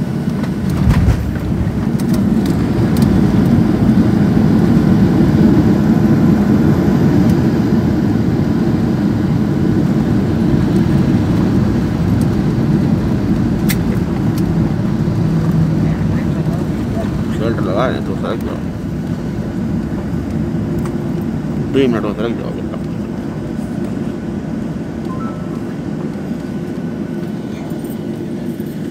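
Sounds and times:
jet engines and wheels rumbling: 0:00.0 - 0:28.9
thump in airplane cabin: 0:00.7 - 0:01.6.

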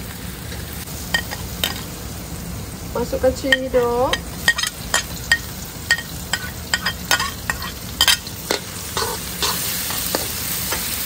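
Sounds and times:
food frying in hot oil: 0:00.0 - 0:11.0
metal spatula scraping a wok: 0:04.4 - 0:11.0.

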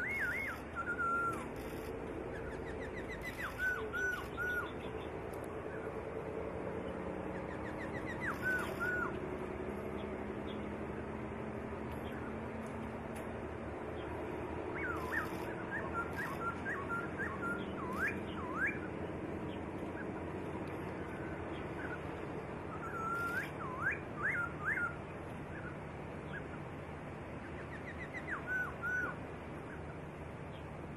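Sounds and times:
bird whistling song: 0:00.0 - 0:05.9, 0:07.3 - 0:09.2, 0:14.0 - 0:26.6, 0:27.5 - 0:29.8
steady background hiss: 0:00.0 - 0:30.9.

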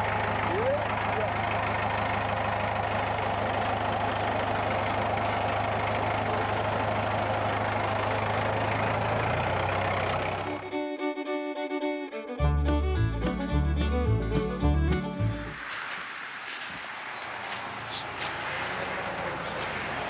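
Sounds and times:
tractor diesel engine running: 0:00.0 - 0:15.7, 0:17.5 - 0:20.0
fiddle tune: 0:09.7 - 0:15.7.

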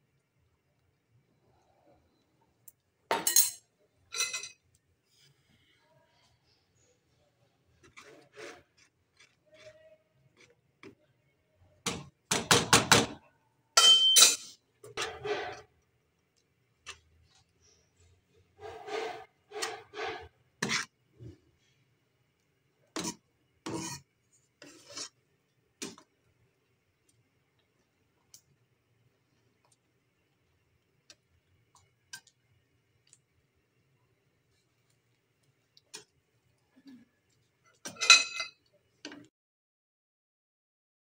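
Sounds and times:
ladle scraping a wok: 0:07.8 - 0:10.5, 0:14.9 - 0:15.7, 0:16.8 - 0:21.4, 0:22.9 - 0:25.2.

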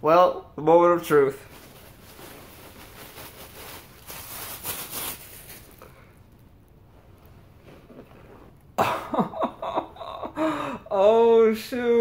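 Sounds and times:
wrapping paper rustling: 0:01.1 - 0:06.5.

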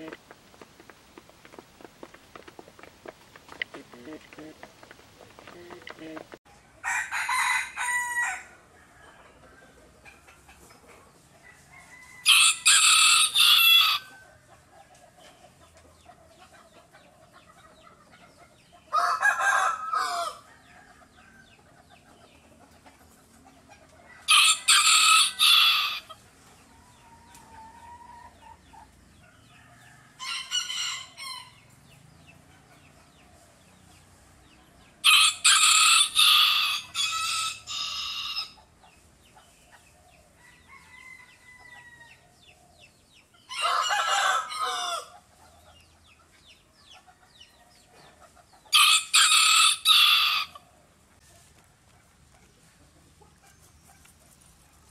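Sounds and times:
rooster crowing: 0:06.8 - 0:09.3, 0:11.5 - 0:14.2, 0:18.9 - 0:21.0, 0:24.3 - 0:26.1, 0:35.0 - 0:38.6, 0:40.4 - 0:42.2, 0:43.5 - 0:45.1, 0:48.7 - 0:50.6.

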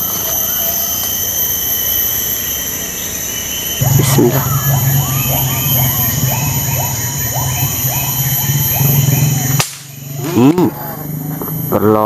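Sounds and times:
steady low hum: 0:00.0 - 0:12.0
short pitched sweeps: 0:03.0 - 0:11.7
animal calling: 0:03.7 - 0:11.8
sharp crack: 0:09.5 - 0:10.6.

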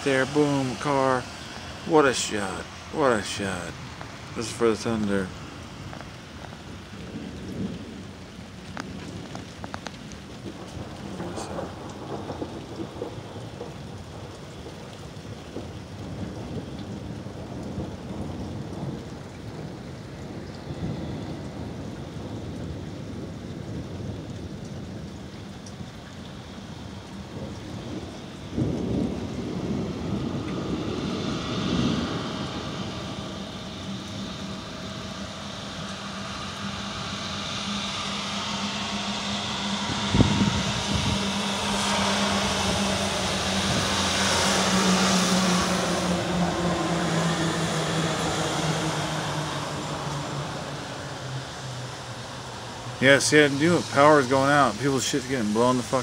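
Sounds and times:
thunder rolling: 0:00.0 - 0:37.2, 0:37.9 - 0:56.0
rain hissing: 0:00.0 - 0:56.0
steady low hum: 0:26.3 - 0:56.0.

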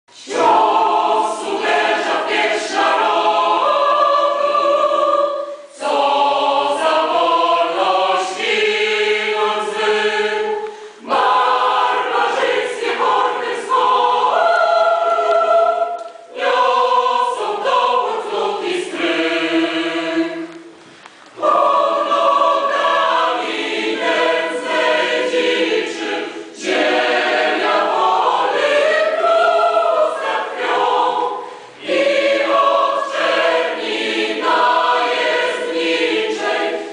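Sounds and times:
mixed choir singing: 0:00.1 - 0:20.8, 0:21.4 - 0:36.9.

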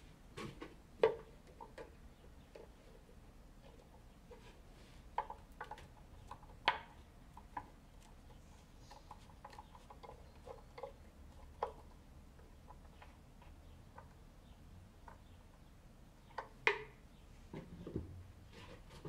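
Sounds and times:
wooden clicks and knocks: 0:00.4 - 0:02.8, 0:05.1 - 0:14.2, 0:15.0 - 0:17.0.

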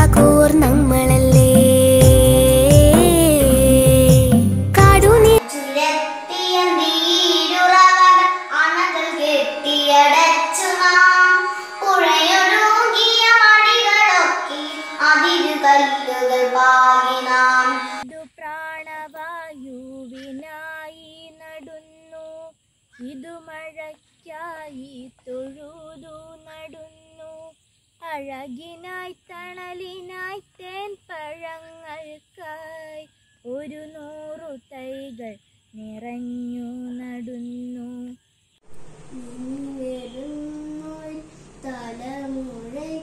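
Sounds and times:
girl singing loudly: 0:00.0 - 0:22.4
girl singing quietly alone: 0:00.0 - 0:38.2, 0:38.8 - 0:43.0.

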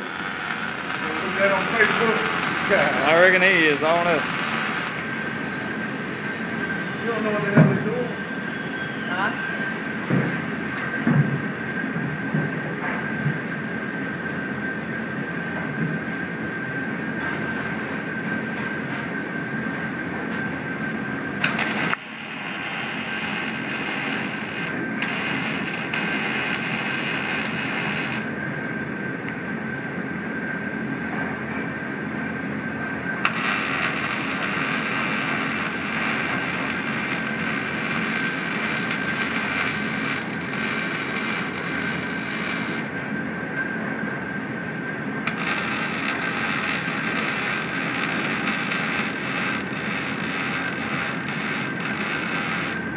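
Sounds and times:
welding arc hissing: 0:00.0 - 0:05.1, 0:21.4 - 0:28.3, 0:33.2 - 0:42.9, 0:45.3 - 0:52.9
constant drone: 0:00.0 - 0:12.4, 0:13.9 - 0:52.9.

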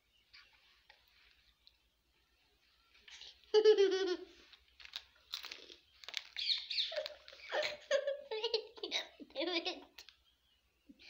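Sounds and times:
plastic snack packet crinkling: 0:04.5 - 0:07.9.

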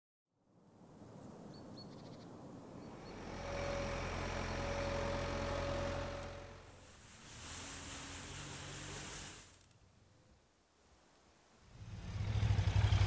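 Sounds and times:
high whine: 0:02.7 - 0:09.7
snow groomer engine humming: 0:02.8 - 0:09.8.

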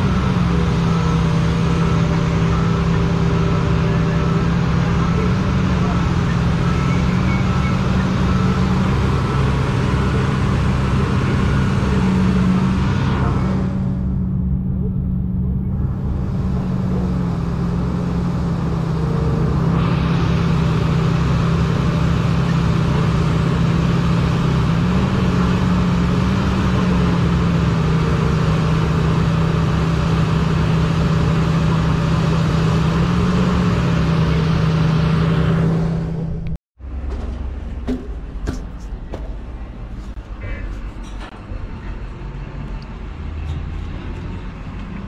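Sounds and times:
large diesel engine running: 0:00.0 - 0:45.0
quiet rumble: 0:09.1 - 0:20.4, 0:35.9 - 0:45.0.

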